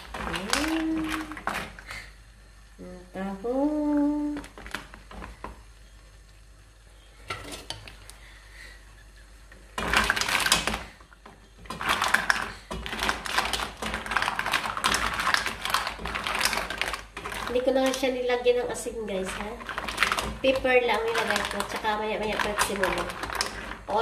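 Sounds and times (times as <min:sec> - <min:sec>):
mussel shells clattering in a pot: 0:00.0 - 0:01.9, 0:09.6 - 0:24.0.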